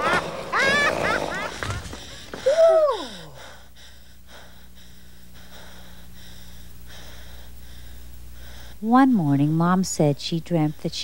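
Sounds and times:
low electrical hum: 0.0s - 11.0s
soft breathing: 1.5s - 8.9s.

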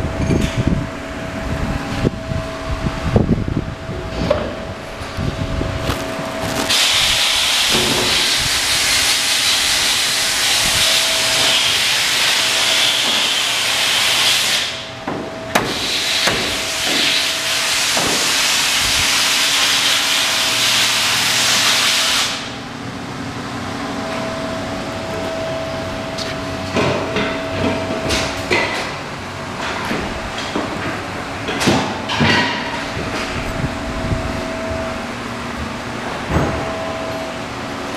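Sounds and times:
loud steady hiss: 6.6s - 15.0s, 15.6s - 22.6s
knocks and clanks: 15.0s - 17.2s, 29.6s - 33.4s, 36.2s - 36.8s.

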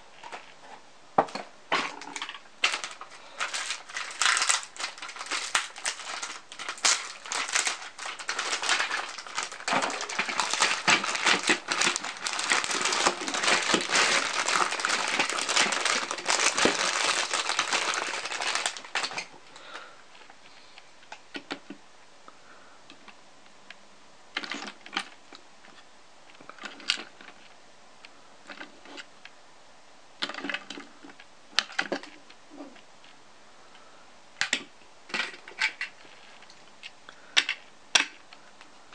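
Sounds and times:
plastic crackling and clicking: 1.3s - 21.8s, 34.4s - 38.7s.

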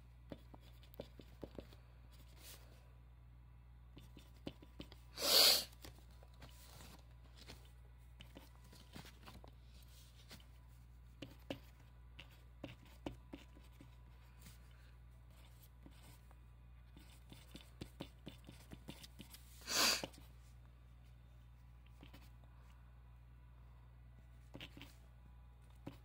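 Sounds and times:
pen writing on paper: 0.3s - 1.8s, 4.0s - 5.1s, 11.2s - 14.0s, 15.3s - 16.2s, 16.9s - 19.4s, 24.5s - 25.0s.

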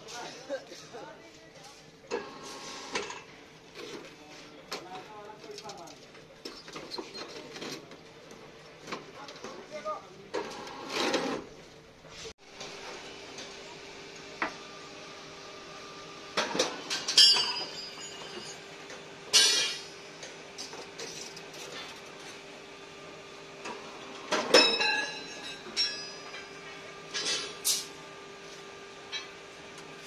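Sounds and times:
steel bars clanking and rattling: 16.4s - 18.6s, 19.3s - 20.0s, 24.3s - 27.9s.

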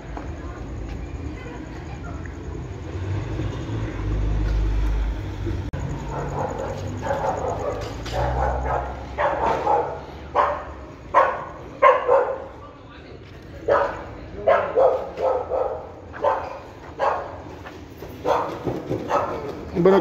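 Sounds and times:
low rumble of passing traffic: 0.0s - 20.0s
dog barking: 6.0s - 12.6s, 13.6s - 17.6s, 18.2s - 19.6s.

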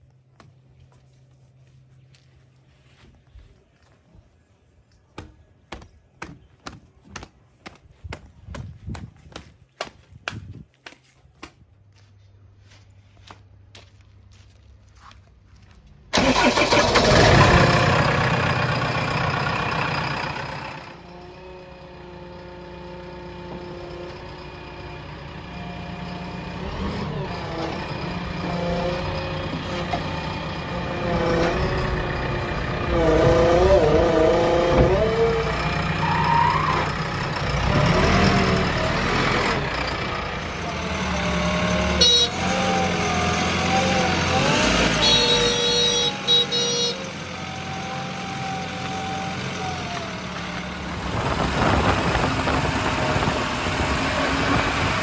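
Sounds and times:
diesel engine revving: 16.1s - 55.0s.

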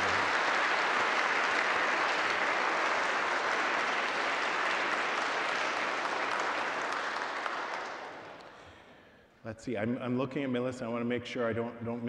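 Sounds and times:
congregation applauding: 0.0s - 8.9s.

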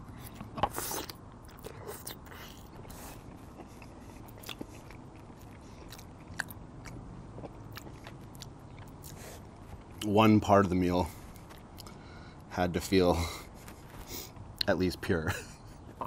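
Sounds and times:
person chewing food: 0.0s - 10.1s, 11.1s - 12.4s.

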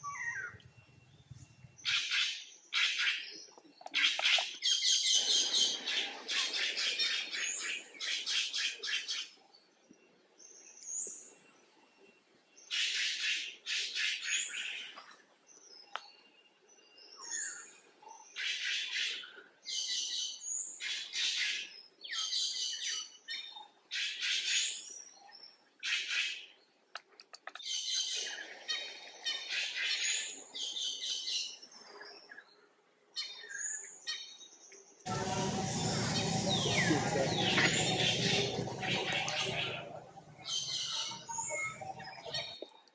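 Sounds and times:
birds chirping: 35.1s - 42.9s.

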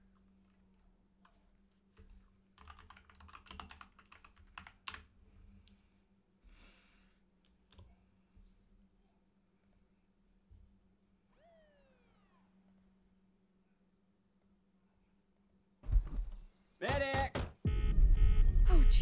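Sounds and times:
typing on computer keyboard: 2.0s - 5.1s.

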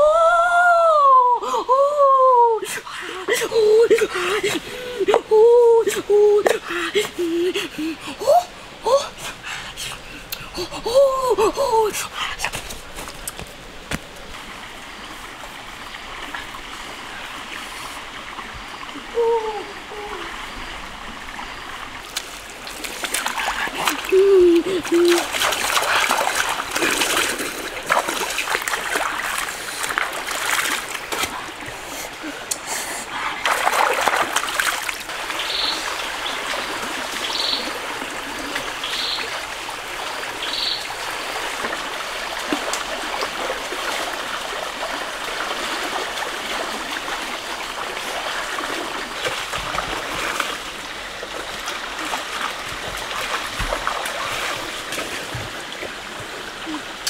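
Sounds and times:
running stream water: 0.0s - 57.0s
hands splashing water: 22.0s - 31.4s, 33.4s - 35.5s.

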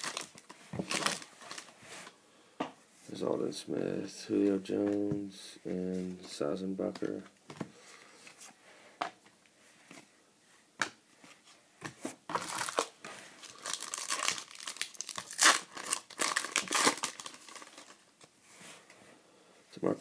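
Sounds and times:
foil wrapper tearing and crinkling: 0.0s - 1.6s, 12.4s - 18.0s.

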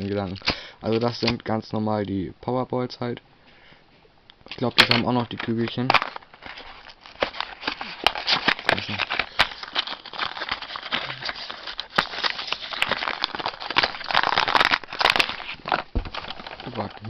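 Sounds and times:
cardboard and paper crinkling: 4.6s - 17.0s.

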